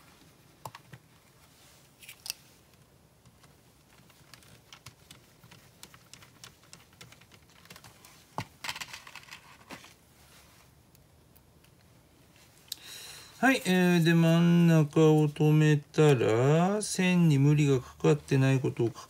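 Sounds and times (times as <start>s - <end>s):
plastic parts being handled: 1.9s - 10.0s.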